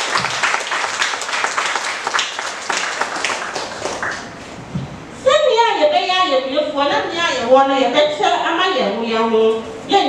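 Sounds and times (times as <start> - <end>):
crowd applauding: 0.0 - 4.4.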